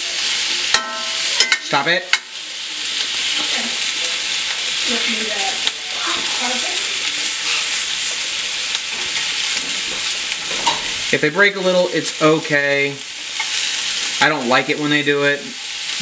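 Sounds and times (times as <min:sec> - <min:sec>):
meatballs sizzling in a skillet: 0:00.0 - 0:16.0
spoon tapping pan: 0:00.7 - 0:02.3.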